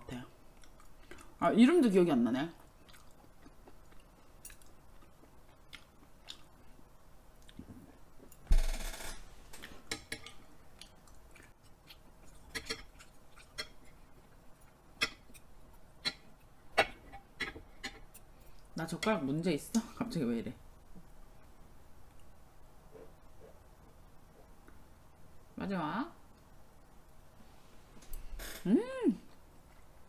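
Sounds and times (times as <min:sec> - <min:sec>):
chewing: 0:00.5 - 0:01.4, 0:02.6 - 0:06.8, 0:09.6 - 0:16.3.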